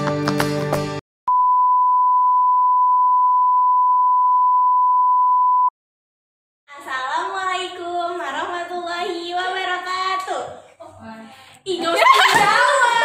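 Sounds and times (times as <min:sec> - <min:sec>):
steady test tone beep: 0:01.3 - 0:05.7.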